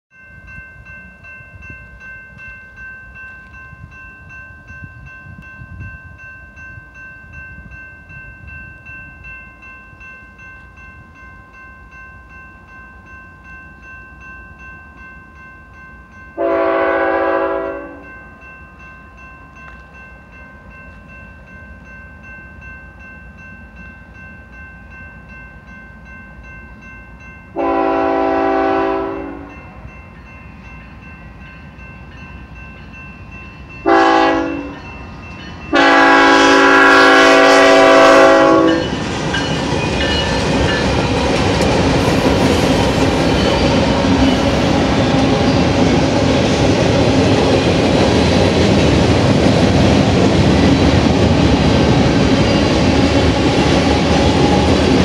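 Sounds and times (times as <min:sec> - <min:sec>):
locomotive air horn: 0:16.4 - 0:18.0, 0:27.6 - 0:29.5, 0:33.9 - 0:34.8, 0:35.7 - 0:38.9.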